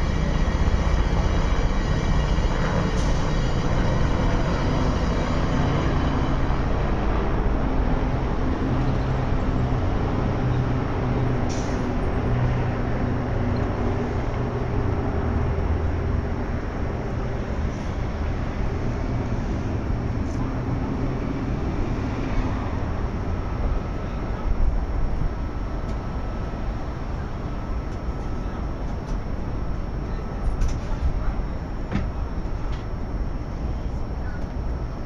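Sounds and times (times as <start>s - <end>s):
city traffic: 0.0s - 35.0s
funicular car rumbling on track: 0.0s - 35.0s
faint high whine: 11.6s - 35.0s.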